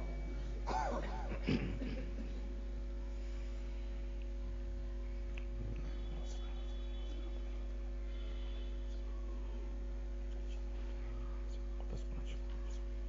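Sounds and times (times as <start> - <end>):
electrical mains hum: 0.0 - 13.0
faint steady tones: 2.2 - 12.8
faint voice sounds: 4.8 - 13.0.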